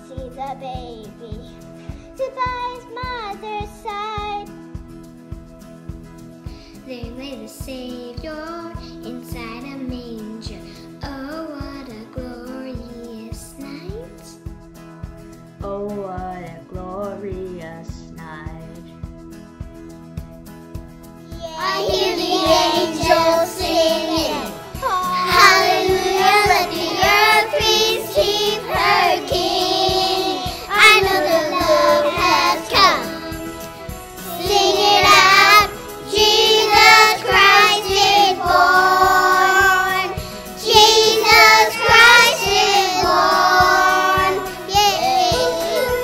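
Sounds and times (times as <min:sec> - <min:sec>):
children singing together: 0:21.4 - 0:46.0.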